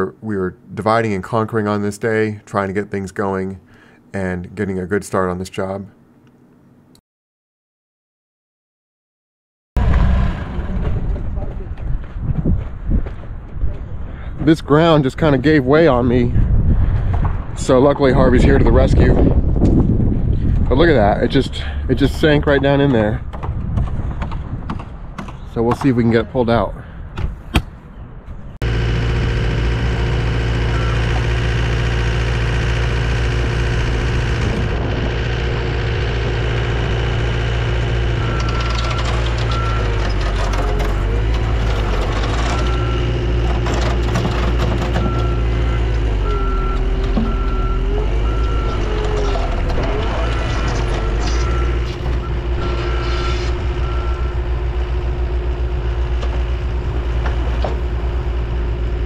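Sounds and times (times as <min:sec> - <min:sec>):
loader engines running hard: 0:09.8 - 0:24.5, 0:28.6 - 0:59.0
backup alarm beeping: 0:28.6 - 0:34.7, 0:37.4 - 0:41.4, 0:42.4 - 0:43.4, 0:45.0 - 0:54.8.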